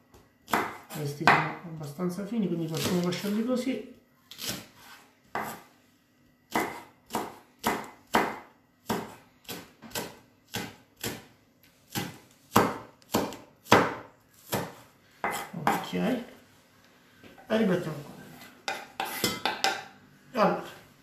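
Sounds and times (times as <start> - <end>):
knife slicing spring onions: 2.7 - 3.4, 4.3 - 5.7, 6.5 - 11.3, 11.9 - 16.0.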